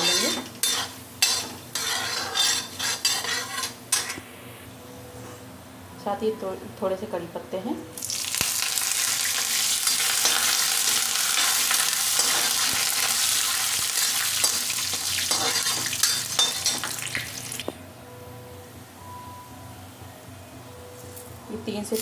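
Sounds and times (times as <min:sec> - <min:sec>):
leaves sizzling in hot oil: 0:00.0 - 0:04.2, 0:08.0 - 0:17.7
metal spoon stirring: 0:00.0 - 0:04.2, 0:14.4 - 0:16.9.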